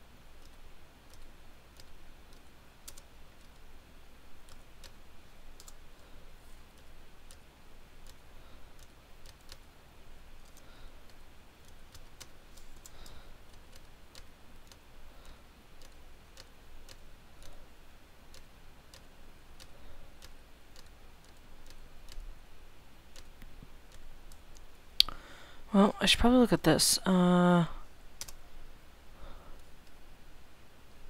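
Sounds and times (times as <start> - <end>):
keyboard keys clicking: 0.4 - 3.6, 5.6 - 5.8.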